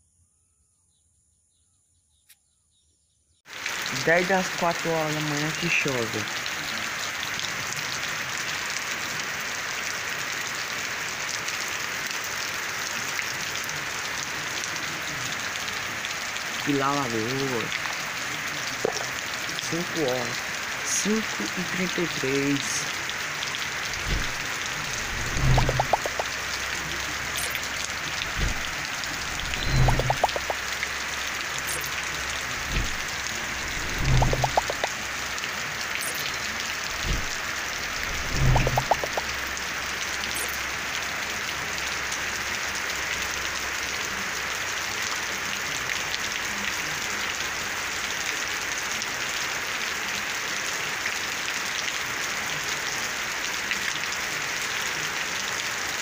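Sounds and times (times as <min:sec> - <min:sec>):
heavy rain on concrete and trees: 0:03.5 - 0:56.0
low thumps: 0:23.9 - 0:26.3, 0:28.2 - 0:30.6, 0:32.6 - 0:34.9, 0:36.9 - 0:39.2.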